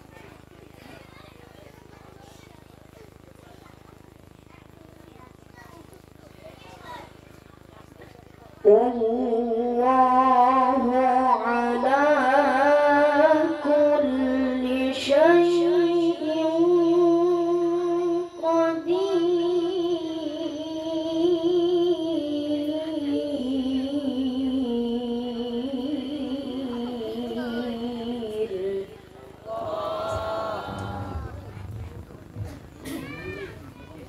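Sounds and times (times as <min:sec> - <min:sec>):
child reciting melodically: 0:08.6 - 0:29.0.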